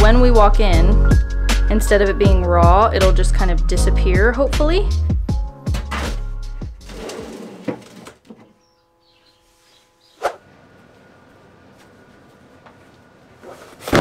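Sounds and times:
plastic box sliding and bumping: 0:06.9 - 0:08.4.

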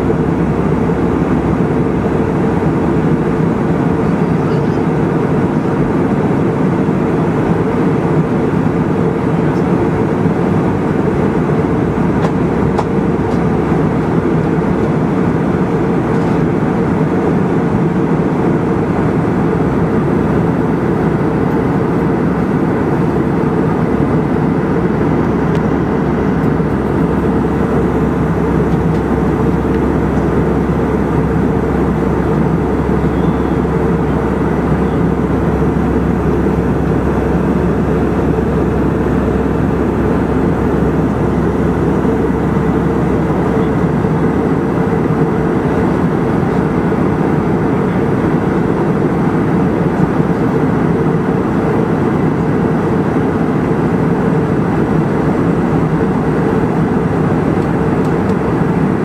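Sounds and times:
aircraft cabin engine rumble: 0:00.0 - 0:59.0.

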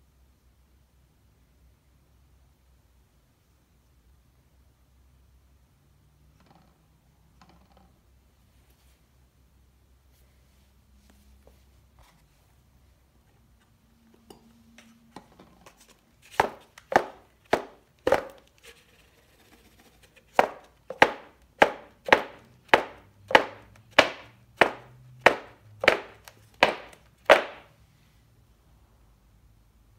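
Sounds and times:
board knocking against worktable: 0:20.4 - 0:27.7.

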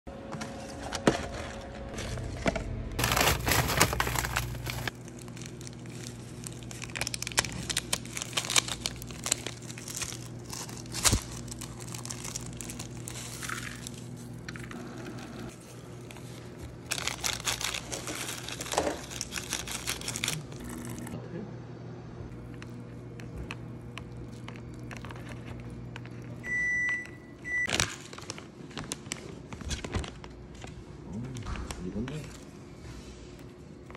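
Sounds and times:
steady low hum: 0:00.1 - 0:27.7
plastic packaging crinkling: 0:03.0 - 0:21.2, 0:22.4 - 0:26.5, 0:27.5 - 0:30.8.

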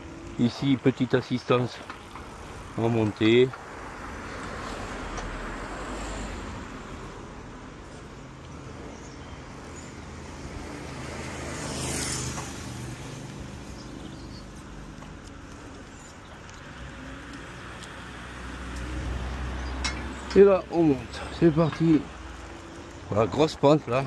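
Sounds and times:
bike tyre and wind noise: 0:00.0 - 0:24.0.

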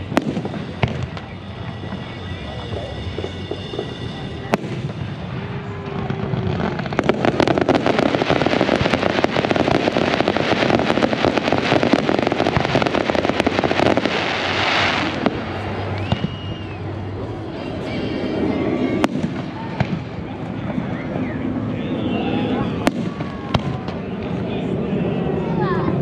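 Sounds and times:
firework bang: 0:00.0 - 0:16.7, 0:18.8 - 0:20.3, 0:22.8 - 0:24.0.

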